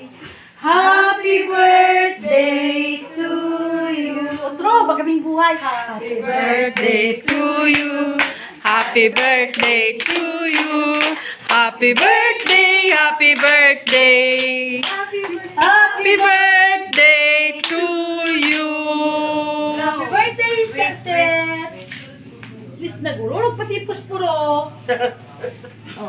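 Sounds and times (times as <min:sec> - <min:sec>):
women singing together: 0:00.0 - 0:21.7
people clapping in time: 0:06.8 - 0:12.7, 0:13.4 - 0:18.8.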